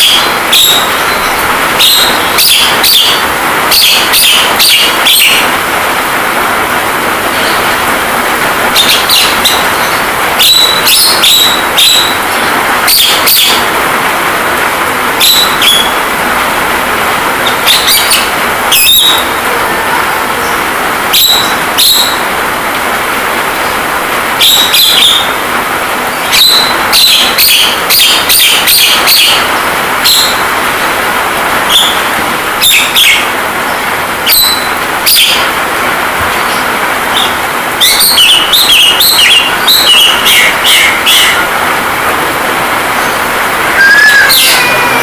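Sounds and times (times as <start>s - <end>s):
rain hiss: 0.0s - 45.0s
bird giving sharp calls: 37.2s - 41.5s, 43.0s - 45.0s.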